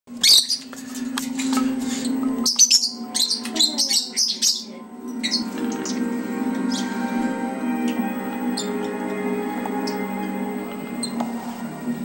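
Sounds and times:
steady low hum: 0.6s - 12.0s
parrot high chirping calls: 2.0s - 7.0s.

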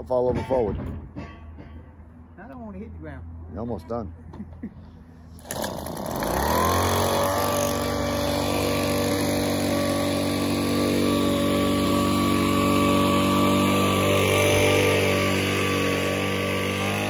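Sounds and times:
leaf blower engine running: 5.4s - 17.0s.

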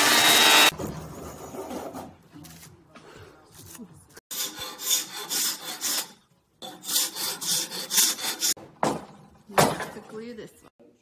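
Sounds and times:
sanding block rubbing wood: 4.3s - 6.1s, 6.8s - 8.6s.

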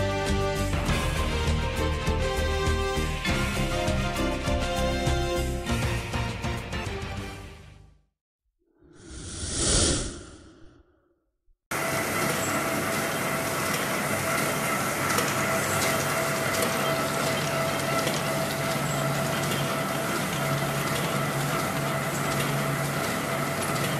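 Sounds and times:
printing press hum: 11.7s - 23.9s
printing press clattering: 12.2s - 23.9s.

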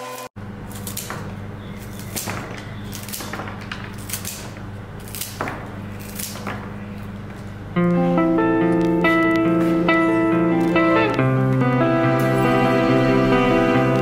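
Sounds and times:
steady low hum: 0.4s - 14.0s
scissors snipping stems: 0.6s - 8.1s.

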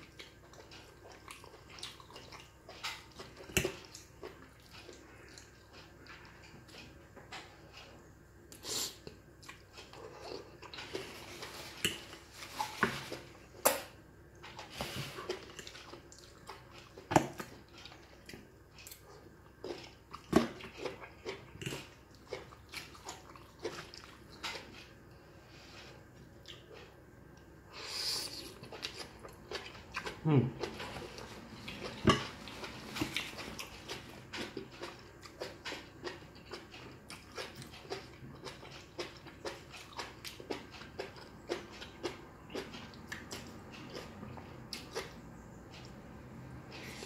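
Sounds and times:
noodles slurped and chewed: 27.7s - 45.2s.

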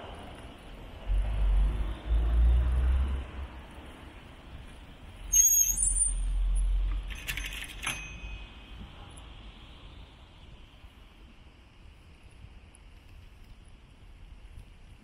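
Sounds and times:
metallic jingle of clicks: 7.1s - 8.5s.

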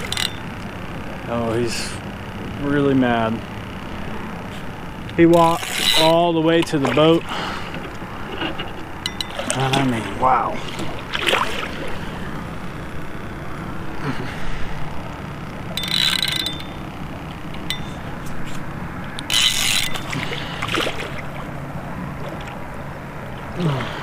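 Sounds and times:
fishing reel cranking: 0.0s - 0.5s, 5.1s - 9.8s, 15.6s - 18.1s, 19.2s - 21.0s
reel drag ratcheting: 0.0s - 0.7s, 5.0s - 10.0s, 15.4s - 21.3s.

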